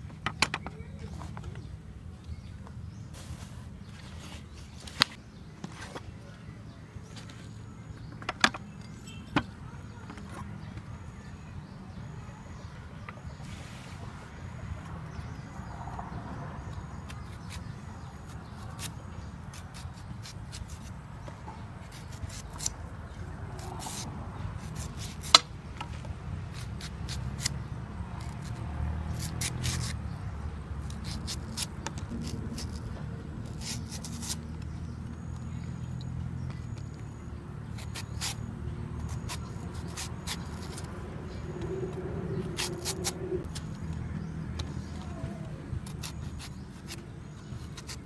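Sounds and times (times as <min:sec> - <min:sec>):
knife scraping fruit: 0:16.6 - 0:48.0.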